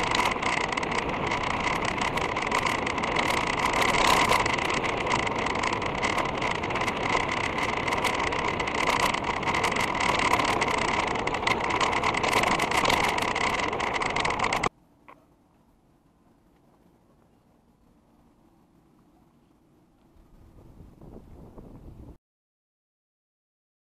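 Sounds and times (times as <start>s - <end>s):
bike tyres on gravel: 0.0s - 14.7s.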